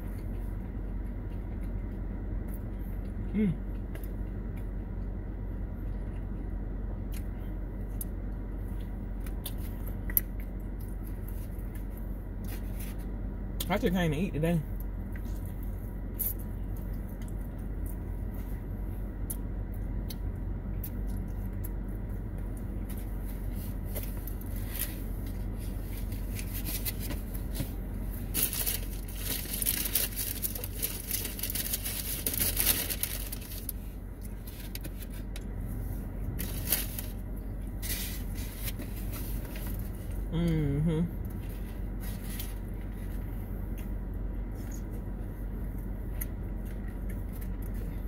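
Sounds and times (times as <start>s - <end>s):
chewing and mouth sounds: 0.0s - 5.2s, 14.8s - 24.6s, 42.8s - 48.0s
low hum inside car: 0.0s - 48.0s
rustling and crinkling: 22.8s - 40.2s, 41.3s - 43.8s.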